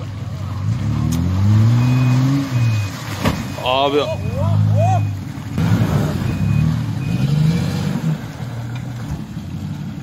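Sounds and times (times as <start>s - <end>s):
off-road engines revving: 0.0s - 10.0s.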